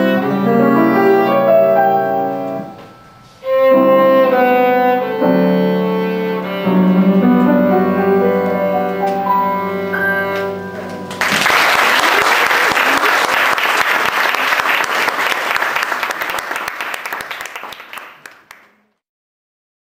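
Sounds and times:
viola and piano: 0.0s - 11.4s
audience applause: 11.1s - 18.8s.

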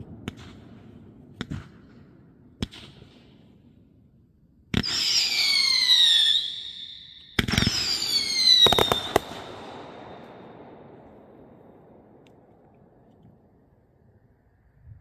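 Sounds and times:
firework whistle sliding down: 4.9s - 9.2s
firework cracks: 7.4s - 12.7s.

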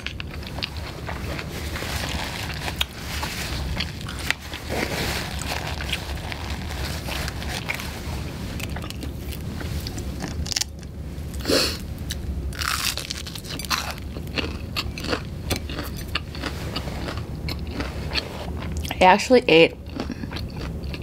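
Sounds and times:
crunchy chewing: 0.0s - 11.5s, 12.1s - 19.0s, 19.8s - 21.0s
steady low hum: 0.0s - 21.0s
loud crunch of biting fried food: 12.1s - 18.2s.

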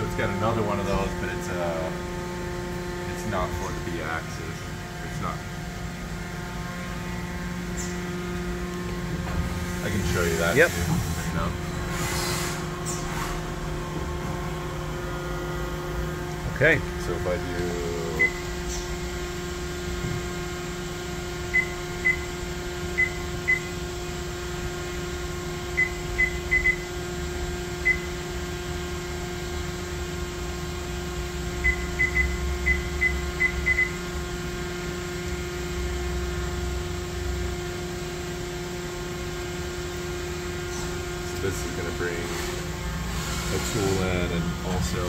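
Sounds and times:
machine humming at idle: 0.0s - 45.0s.

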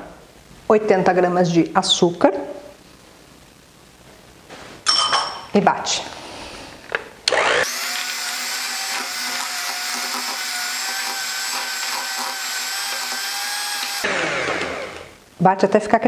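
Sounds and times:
electric hand mixer whining: 7.3s - 15.2s.

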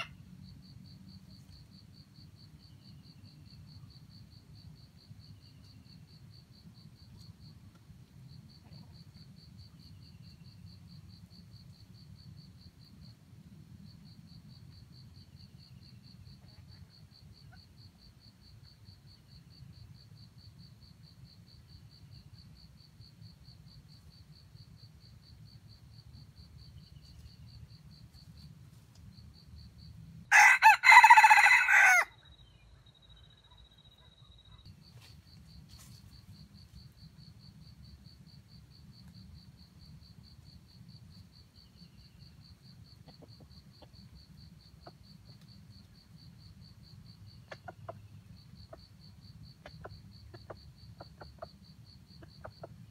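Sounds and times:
insect trill: 0.0s - 52.9s
rooster crowing: 30.3s - 32.2s.

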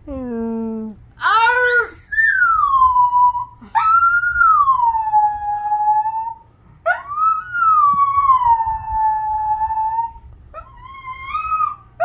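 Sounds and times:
dog howling: 1.4s - 12.0s.

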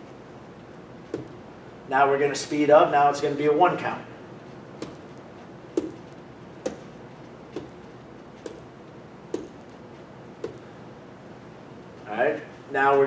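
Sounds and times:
sharp taps: 4.8s - 5.2s, 5.8s - 8.7s, 9.3s - 9.7s, 10.4s - 10.7s.

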